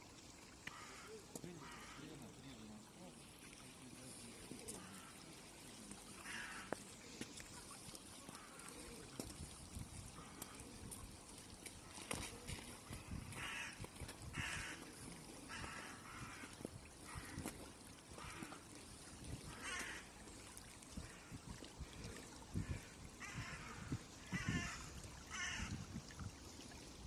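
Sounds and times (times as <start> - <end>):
stream flowing over stones: 0.0 - 27.0.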